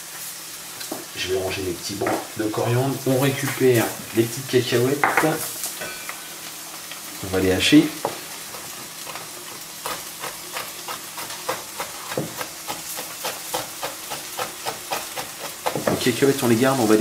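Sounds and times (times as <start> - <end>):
fish sizzling in a pan: 0.0 - 17.0
knife chopping on wooden board: 9.8 - 16.2.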